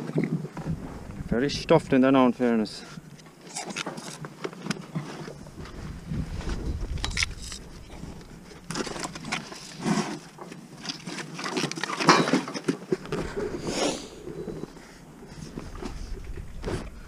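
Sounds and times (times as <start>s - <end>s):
short breathy rush: 13.2s - 17.0s.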